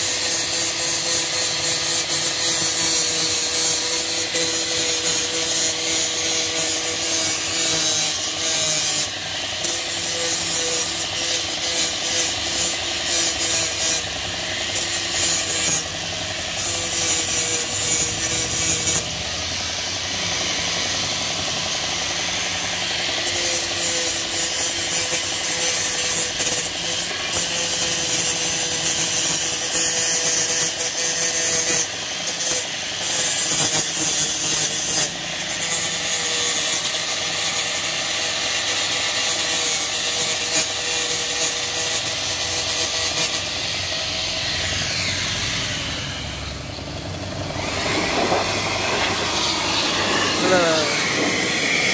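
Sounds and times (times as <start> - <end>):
mechanical hum: 0.0 - 51.9
abrasive scraping steel: 42.0 - 51.9.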